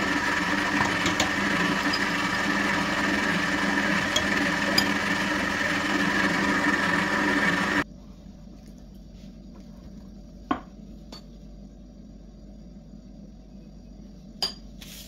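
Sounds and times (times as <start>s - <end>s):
small electric motor humming: 0.0s - 7.8s.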